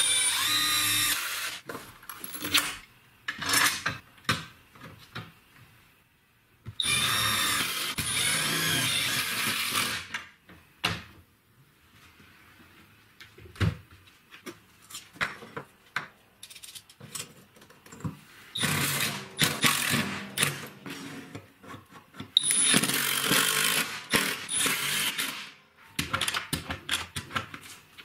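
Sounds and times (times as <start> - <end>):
power drill driving screws: 0.0 - 1.6, 6.8 - 10.1, 18.6 - 20.6, 22.4 - 25.5.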